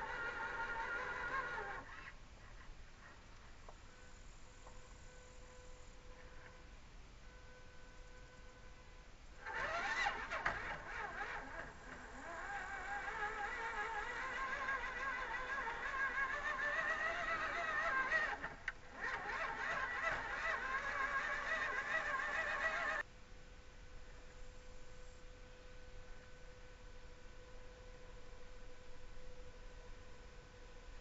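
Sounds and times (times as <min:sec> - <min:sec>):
electric motor and gearbox whining: 0:00.0 - 0:02.2, 0:09.4 - 0:23.0.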